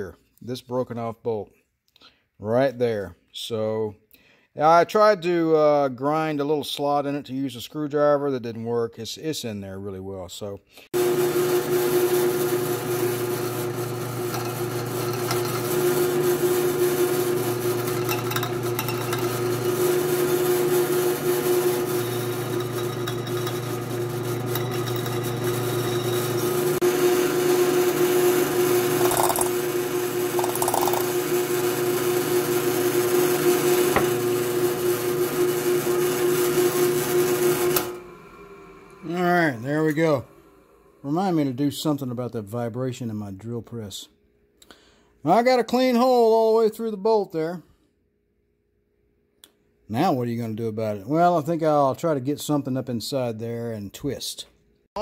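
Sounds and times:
drill press motor whine: 11.0s - 41.0s
drill bit rasping through metal: 13.2s - 26.8s, 28.9s - 29.6s, 30.4s - 31.2s.

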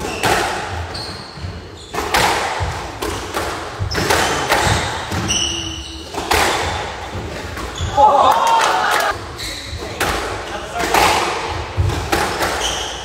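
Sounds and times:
shoe squeak: 0.0s - 2.3s, 3.8s - 6.2s, 7.6s - 8.1s, 9.3s - 10.0s, 12.3s - 13.0s
squash ball hitting walls: 0.0s - 7.9s, 9.9s - 13.0s.

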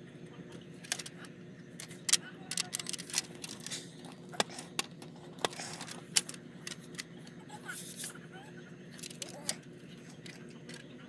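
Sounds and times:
steady low hum: 0.0s - 11.0s
sharp clicks of small objects: 1.8s - 3.8s.

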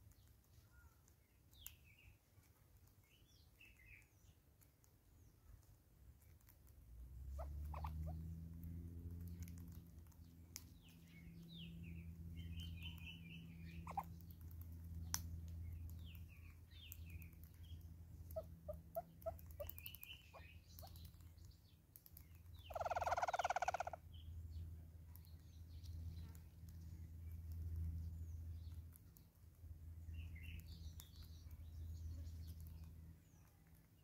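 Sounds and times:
small birds chirping and trilling: 0.0s - 34.0s
harsh rapidly pulsed bird call: 22.7s - 24.0s.

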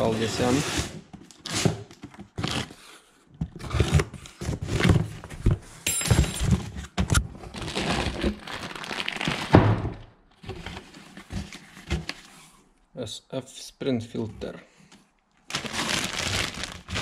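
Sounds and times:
packaging rustling: 7.4s - 9.6s, 15.4s - 17.0s.

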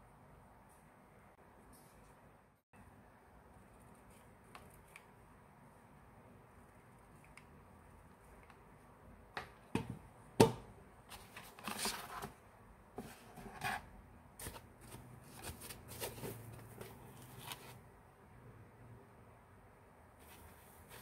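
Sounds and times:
cardboard box rustling and scraping: 13.0s - 17.8s.

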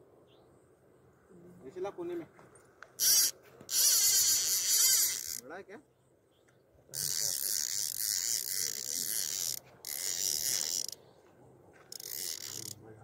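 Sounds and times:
fishing reel clicking whir: 3.0s - 5.4s, 7.0s - 11.0s, 11.9s - 12.8s.

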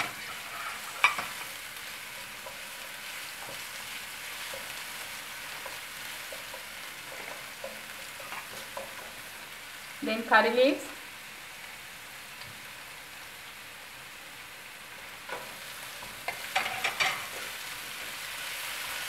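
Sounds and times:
ginger and garlic sizzling in oil: 0.0s - 19.0s.

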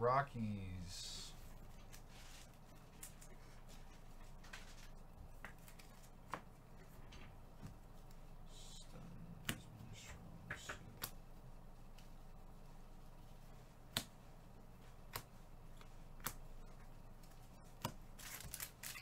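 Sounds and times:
faint rustling of foil pack: 18.2s - 19.0s.

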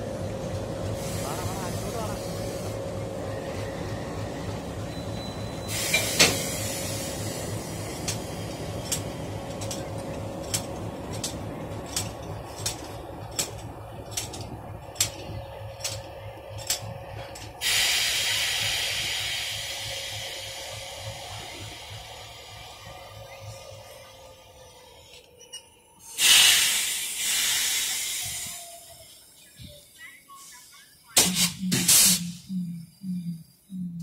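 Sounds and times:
diesel locomotive idling: 0.0s - 34.0s
compressed air hissing: 5.7s - 8.6s, 17.6s - 22.5s, 26.1s - 28.9s, 31.2s - 32.4s.

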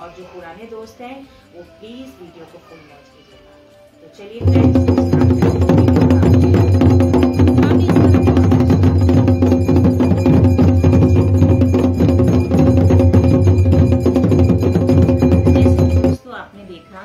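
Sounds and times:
clanking bells: 4.4s - 16.2s
fast drumming: 4.4s - 16.2s
ringing tones: 4.4s - 16.2s.

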